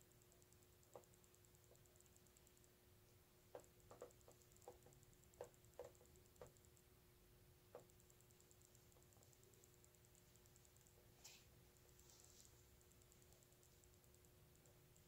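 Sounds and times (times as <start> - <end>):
low steady hum: 0.0 - 15.0
soft clicks: 7.8 - 15.0.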